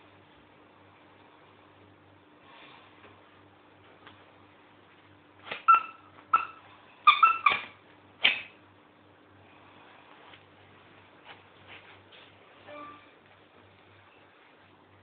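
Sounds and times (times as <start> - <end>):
dog barking high-pitched: 5.6 - 7.7.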